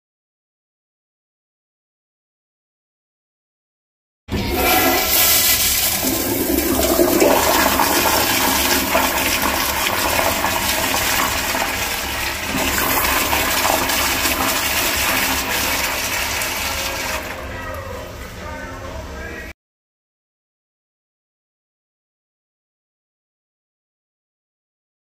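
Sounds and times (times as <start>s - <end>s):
water refilling bowl: 4.3s - 17.9s
toilet flushing: 4.3s - 18.4s.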